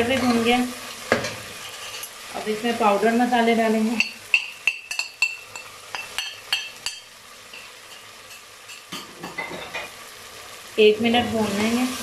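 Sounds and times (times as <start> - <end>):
soft sizzle of frying: 0.0 - 12.0
metal spoon clinking on pot: 4.0 - 9.9.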